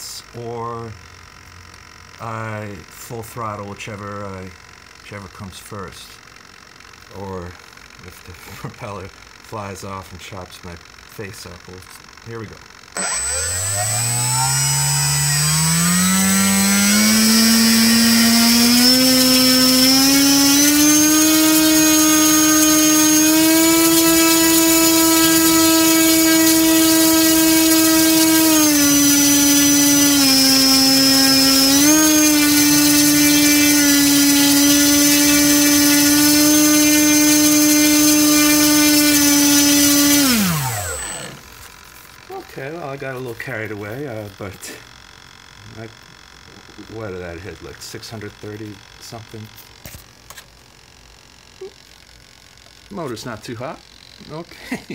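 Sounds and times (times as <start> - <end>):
thin high motor whine: 0.0 - 54.9
electric motor propeller whir: 10.6 - 54.2.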